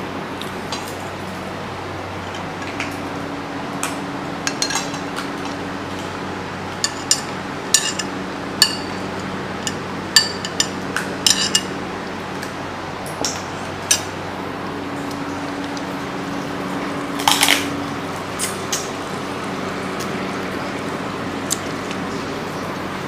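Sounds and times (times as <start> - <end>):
steady low hum: 0.0 - 23.0
metal spoons clinking on plates: 4.4 - 5.6, 6.8 - 11.8.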